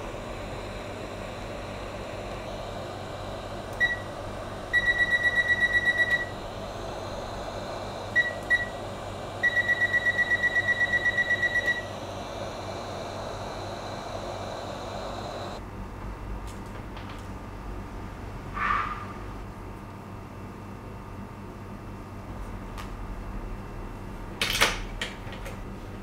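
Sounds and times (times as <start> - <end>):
hot-air blower hissing: 0.0 - 15.8
electronic beeps: 9.4 - 11.9.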